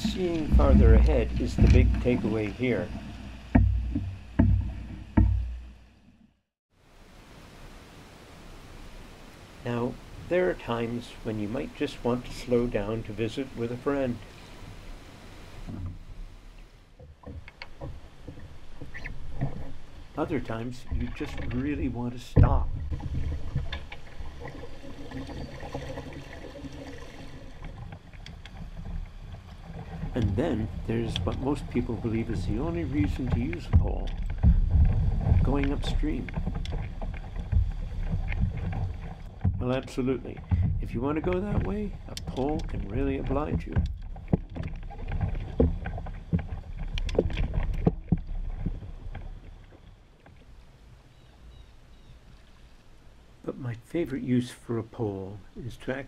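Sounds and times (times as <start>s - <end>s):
pole knocking on canoe: 0.0s - 2.4s, 3.5s - 5.6s, 32.1s - 39.8s
river water running: 0.0s - 6.1s, 6.7s - 56.0s.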